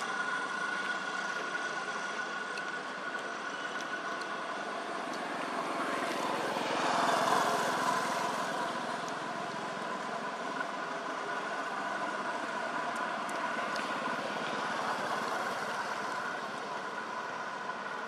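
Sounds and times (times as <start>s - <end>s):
steady background hum: 0.0s - 18.0s
motorbike passing by: 4.3s - 17.2s.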